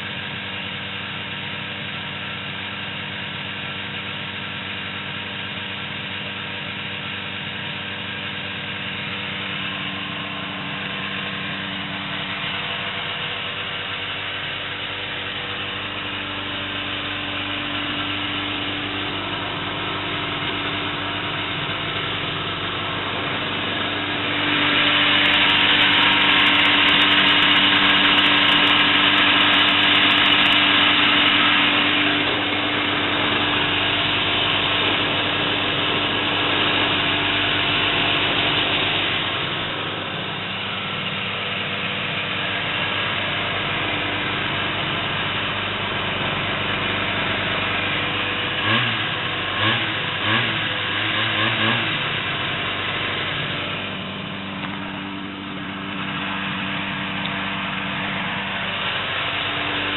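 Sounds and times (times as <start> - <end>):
snowmobile engine idling: 0.0 - 59.9.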